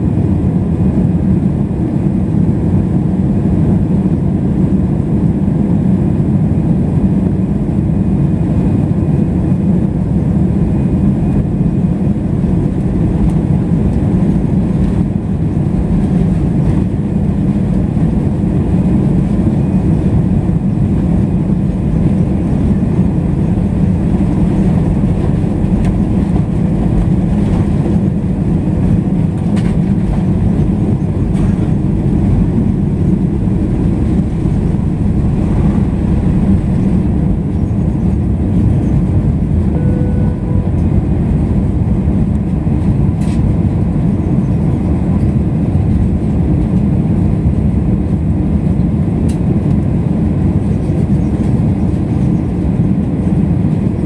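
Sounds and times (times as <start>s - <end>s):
jet engines rumbling: 0.0s - 54.0s.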